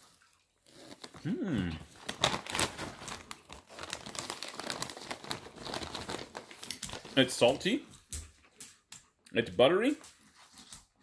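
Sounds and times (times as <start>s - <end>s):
crinkling bag rustle: 0.0s - 7.8s.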